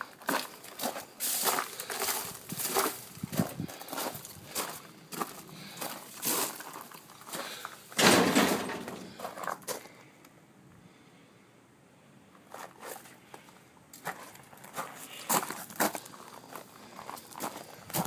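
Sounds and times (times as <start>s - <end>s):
footsteps: 0.2s - 10.0s, 12.4s - 18.0s.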